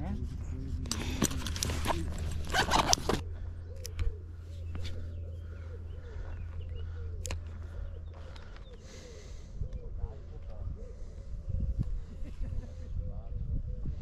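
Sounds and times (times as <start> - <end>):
wind buffeting microphone: 4.7 - 14.0.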